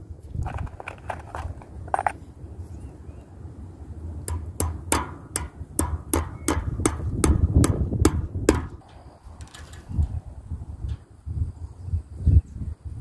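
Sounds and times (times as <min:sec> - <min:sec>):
hammer striking staple into wood: 0:04.3 - 0:08.8.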